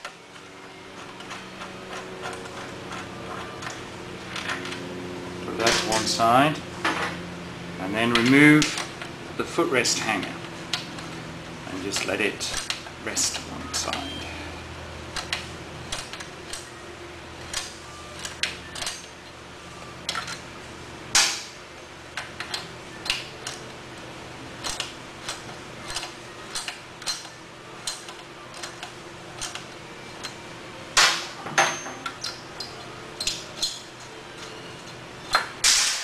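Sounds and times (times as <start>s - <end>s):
wrench clicking on metal: 24.6s - 30.4s.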